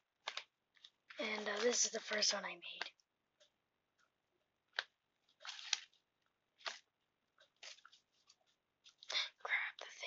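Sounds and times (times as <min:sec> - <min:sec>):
crisp paper rustles: 0:00.2 - 0:02.8, 0:05.2 - 0:09.3.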